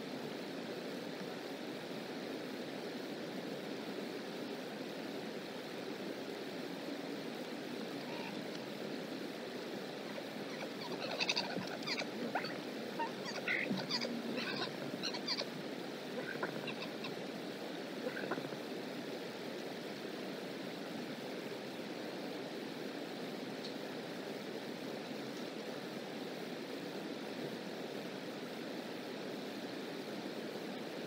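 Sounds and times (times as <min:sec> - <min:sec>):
short high bird calls: 0:10.5 - 0:15.5.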